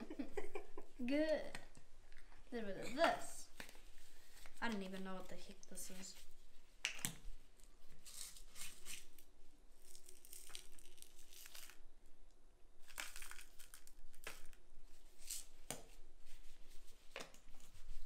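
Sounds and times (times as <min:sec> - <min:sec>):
plastic gloves crinkling: 0:03.4 - 0:12.0, 0:12.8 - 0:18.0.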